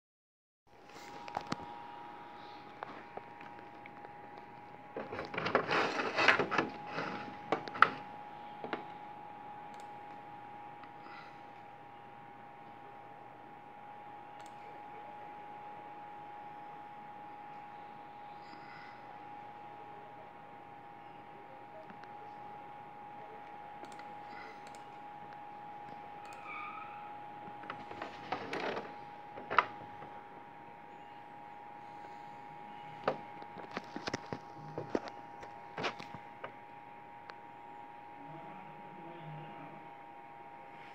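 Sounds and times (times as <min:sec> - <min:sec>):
faint steady whine: 0:00.7 - 0:40.9
rubbing and knocking handling noise: 0:04.9 - 0:08.0
computer mouse clicks: 0:09.7 - 0:10.2, 0:14.4 - 0:14.6, 0:23.8 - 0:26.6
high-pitched electrical tone: 0:26.0 - 0:28.2.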